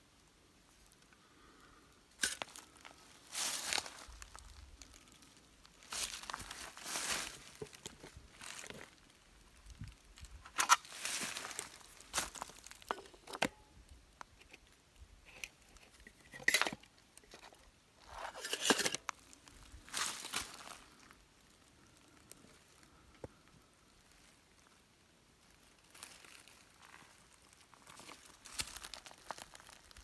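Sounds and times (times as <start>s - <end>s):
dry leaves rustling and crunching: 2.2s - 13.3s, 18.0s - 21.2s, 25.4s - 30.0s.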